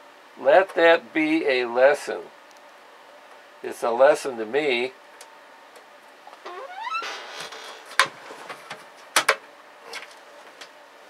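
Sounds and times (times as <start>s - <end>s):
metal panel squeak: 6.4s - 7.9s.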